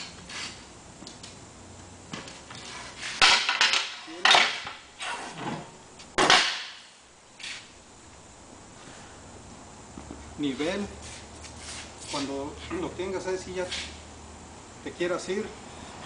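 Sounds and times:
wooden board laid down: 2.1 - 6.8.

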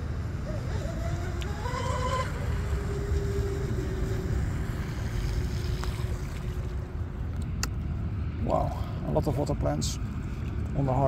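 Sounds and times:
electric motors whining: 0.0 - 7.6
wind rumble on microphone: 0.0 - 11.0.

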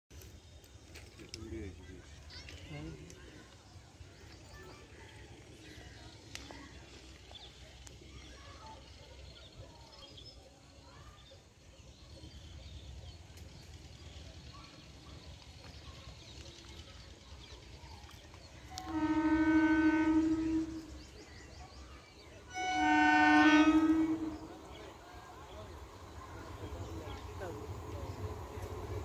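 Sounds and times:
train air horn: 18.7 - 21.2, 22.5 - 24.8.

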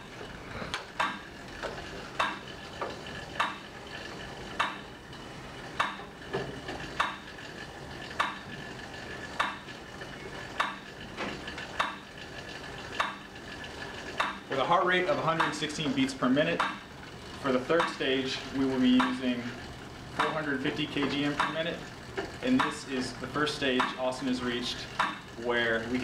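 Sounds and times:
exercise bike whirring: 0.0 - 26.0
pedal clicks: 0.0 - 26.0.

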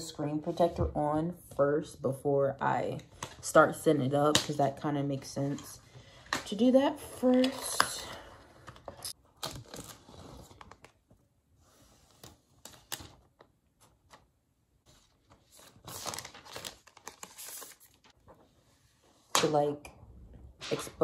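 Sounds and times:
plastic film rustling and crinkling: 14.9 - 18.2.

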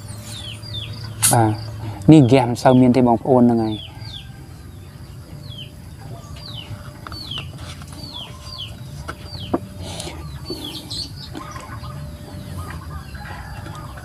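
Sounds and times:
chicks peeping: 0.0 - 14.0
sharp click: 1.2 - 1.5.

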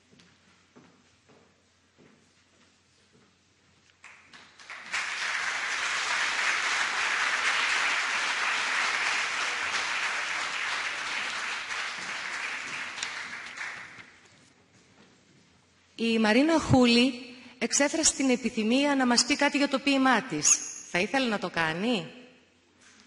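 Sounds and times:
audience applauding: 4.1 - 14.2.

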